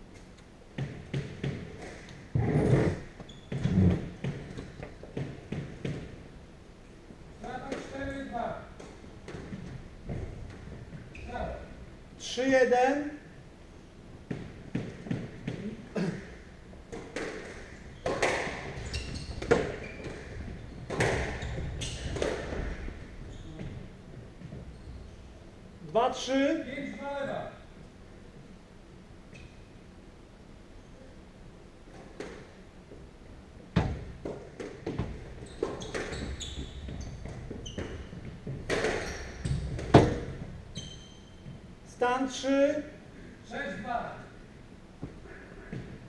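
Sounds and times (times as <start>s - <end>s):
shoes squeaking on wooden floor: 0.8s - 6.2s, 17.1s - 25.4s, 34.5s - 41.7s
squash ball hits: 17.0s - 18.8s, 19.4s - 22.9s, 37.2s - 40.5s.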